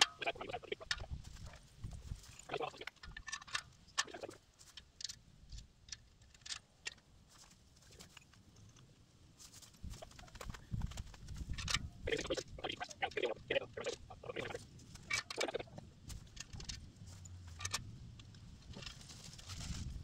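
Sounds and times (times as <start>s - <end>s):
metal parts clicking and knocking: 2.3s - 7.4s, 13.8s - 19.0s.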